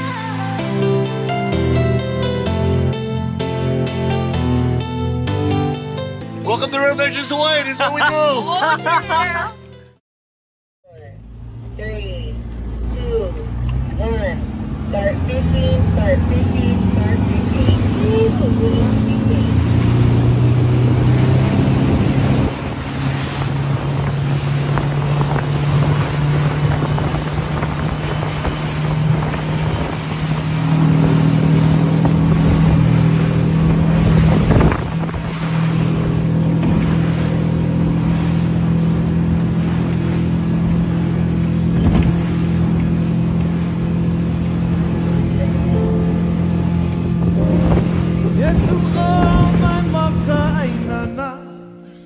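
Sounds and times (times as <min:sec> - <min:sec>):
motorboat engine drone: 0:00.0 - 0:10.0, 0:10.9 - 0:52.0
wind and water rushing: 0:12.6 - 0:51.5.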